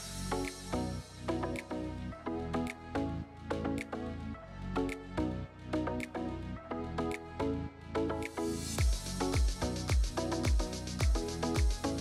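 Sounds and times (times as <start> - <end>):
melodic music over a beat: 0.0 - 12.0
deep kick drum hits: 8.8 - 11.8.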